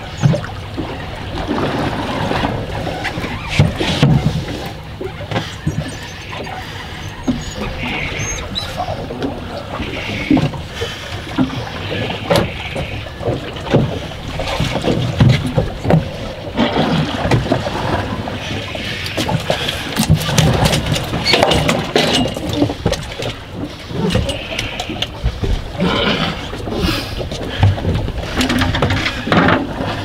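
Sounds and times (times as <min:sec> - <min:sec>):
water slapping against boat hull: 0:00.0 - 0:30.0
knocks and clatter on board: 0:01.6 - 0:04.4, 0:12.3 - 0:18.1, 0:19.2 - 0:23.4, 0:27.2 - 0:30.0.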